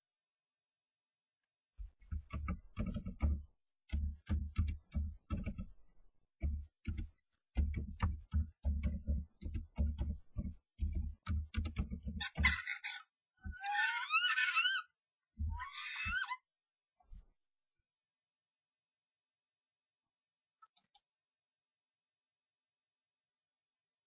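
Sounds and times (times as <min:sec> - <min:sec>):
birds knocking inside wooden box: 0:02.0 - 0:05.8, 0:06.4 - 0:12.7
starling harsh raspy call: 0:12.2 - 0:14.9, 0:15.5 - 0:16.4.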